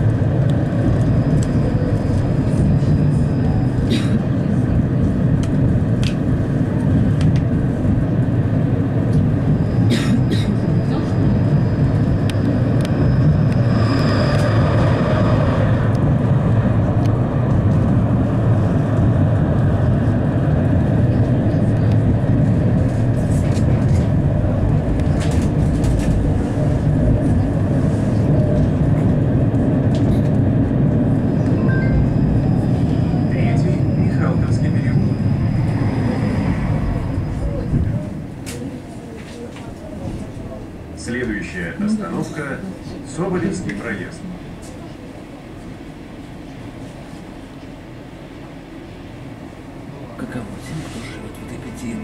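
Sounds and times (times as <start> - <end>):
tram wheels rumbling on rails: 0.0 - 52.0
thin high whine: 10.8 - 16.0.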